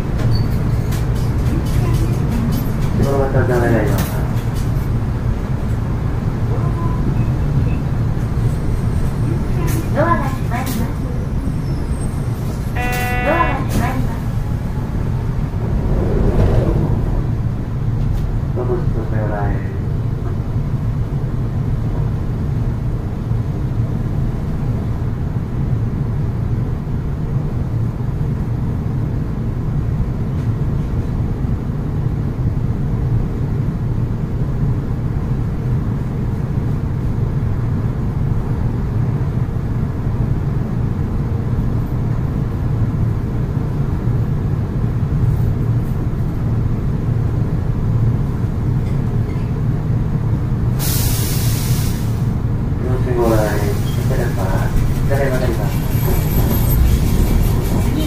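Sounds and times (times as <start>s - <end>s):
tram cabin rumble and hum: 0.0s - 58.0s.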